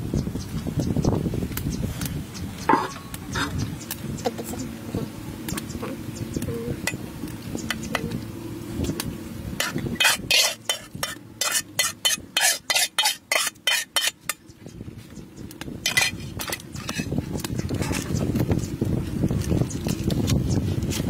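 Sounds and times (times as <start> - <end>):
metal spatula scraping a wok: 9.6 - 14.4, 15.8 - 18.2.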